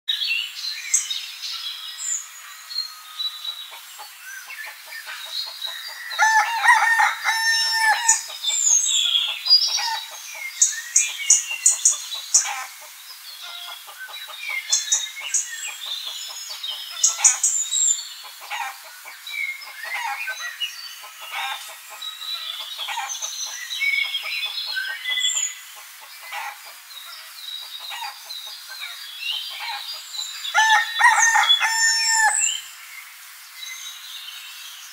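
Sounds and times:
small birds chirping: 0:00.1 - 0:34.9
rooster crowing: 0:06.0 - 0:08.3, 0:30.5 - 0:32.6
hens clucking: 0:25.8 - 0:29.9.

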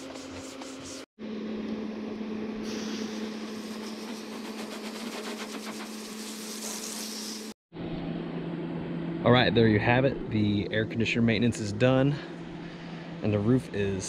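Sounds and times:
hose water spraying on roof: 0:03.6 - 0:07.5
steady low hum: 0:07.8 - 0:14.0.

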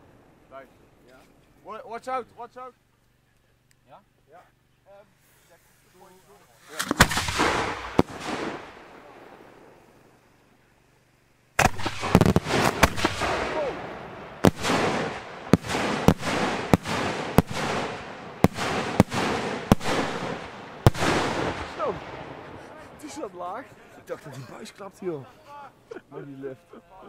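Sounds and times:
firework hiss: 0:04.9 - 0:24.1
firework shells bursting: 0:06.0 - 0:10.5, 0:11.5 - 0:23.4.

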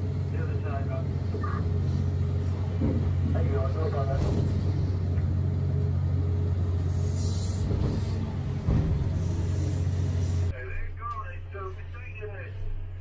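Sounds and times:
excavator engine drone: 0:00.0 - 0:13.0
thump: 0:08.6 - 0:09.3.

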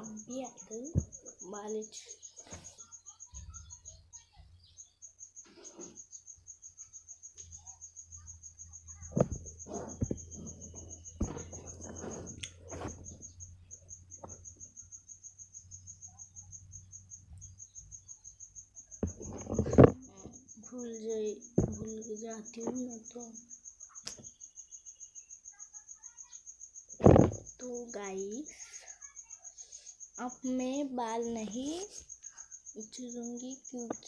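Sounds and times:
cricket chirping: 0:00.0 - 0:34.0
rustling: 0:09.0 - 0:13.5, 0:19.0 - 0:20.4
sharp knocks: 0:27.0 - 0:27.5.

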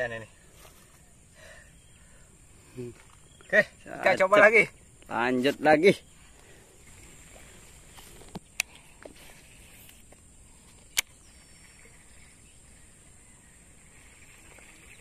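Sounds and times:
sharp clicks: 0:10.9 - 0:11.2.

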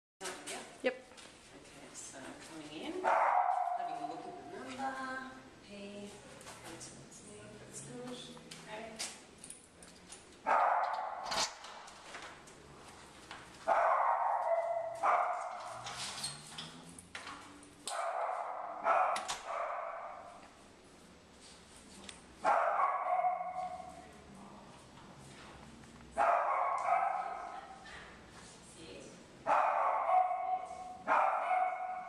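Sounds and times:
dog barking: 0:03.0 - 0:04.3, 0:10.5 - 0:11.3, 0:13.7 - 0:15.9, 0:17.9 - 0:20.4, 0:22.4 - 0:24.0, 0:26.2 - 0:27.9, 0:29.5 - 0:32.0.

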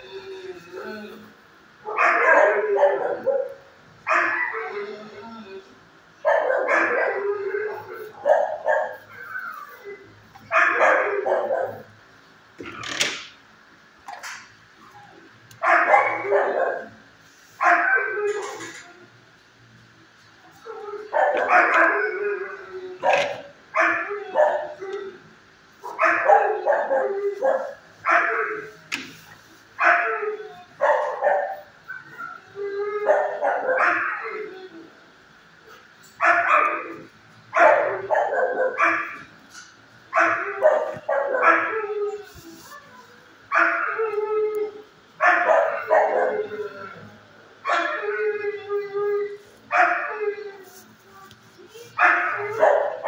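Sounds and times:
dogs barking: 0:01.8 - 0:04.9, 0:06.2 - 0:09.6, 0:10.3 - 0:12.0, 0:15.5 - 0:18.7, 0:20.8 - 0:25.1, 0:25.8 - 0:29.1, 0:29.8 - 0:34.6, 0:35.2 - 0:42.2, 0:43.4 - 0:44.2, 0:45.2 - 0:47.0, 0:47.6 - 0:48.2, 0:49.7 - 0:50.3, 0:51.9 - 0:53.0.

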